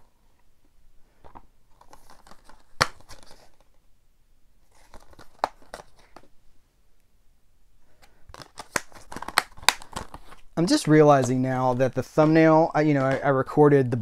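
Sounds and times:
plastic case rustling and crinkling: 1.2 - 3.8, 4.6 - 6.3, 8.3 - 13.5.

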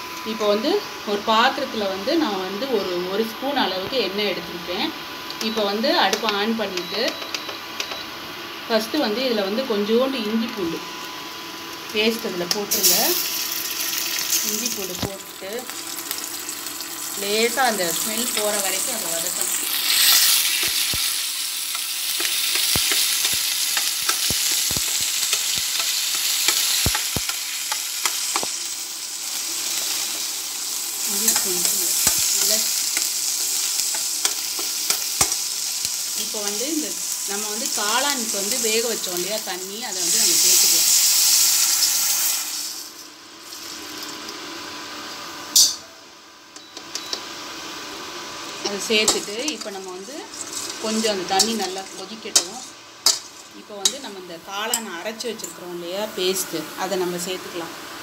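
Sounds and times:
paste sizzling in hot oil: 12.7 - 44.0
liquid hissing in hot pan: 39.9 - 43.8.

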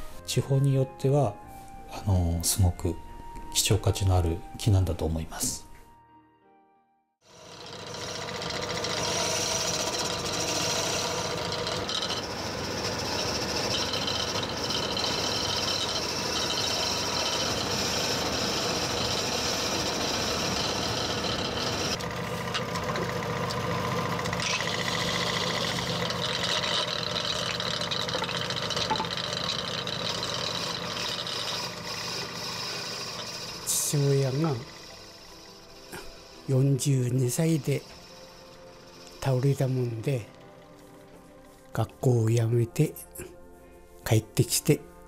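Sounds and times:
lathe machine hum: 7.3 - 39.8
tool hissing cut on wood: 7.3 - 39.9.

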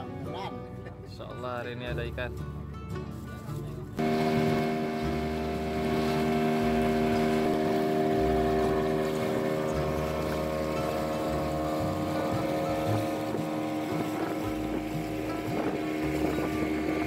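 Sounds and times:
boat engine running: 4.0 - 17.0
water splashing along hull: 4.0 - 17.0.

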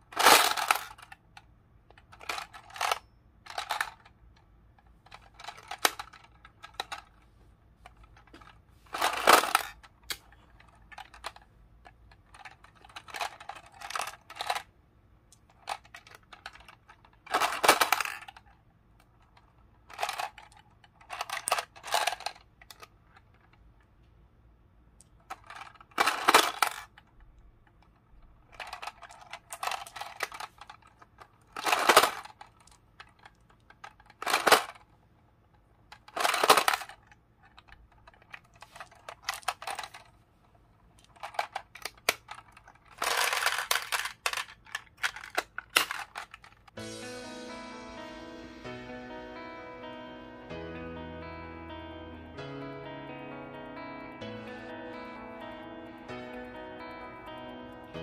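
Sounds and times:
plastic toy slot machine clicking: 0.1 - 7.2, 8.0 - 14.7, 15.4 - 23.6, 25.2 - 34.9, 35.8 - 40.2, 41.0 - 46.8.

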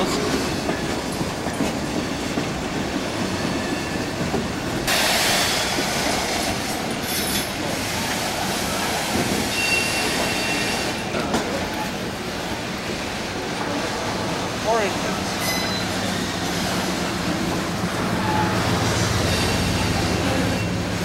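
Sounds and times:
freight train wheels rumbling: 0.0 - 21.0
wheel squeal: 9.5 - 11.0, 18.2 - 20.8.

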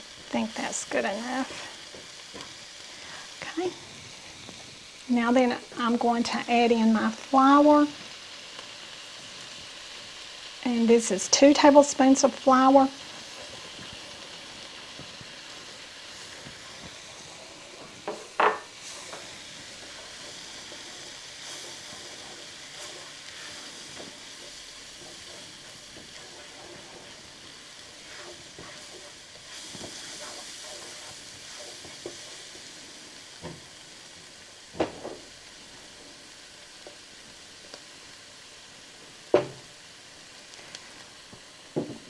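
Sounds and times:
spatula stirring and scraping: 0.0 - 4.7, 12.0 - 34.4
food sizzling in frying pan: 0.0 - 42.0.

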